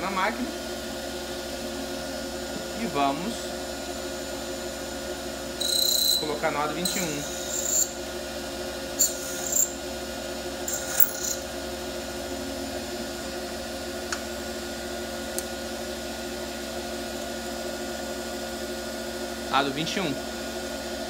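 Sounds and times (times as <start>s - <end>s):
bench lathe humming: 2.5s - 11.6s
cutting tool scraping metal ring: 5.6s - 8.0s, 9.0s - 9.8s, 10.6s - 11.4s.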